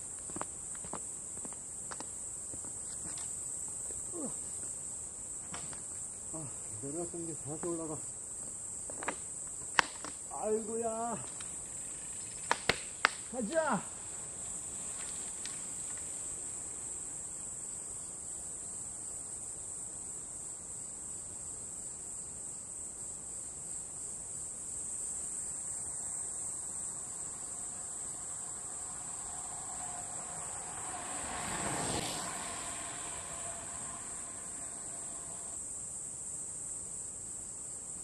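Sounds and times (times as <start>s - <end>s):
high-pitched insect chorus: 0.0s - 38.0s
bicycle tyres whirring past: 10.4s - 18.0s, 26.9s - 35.6s.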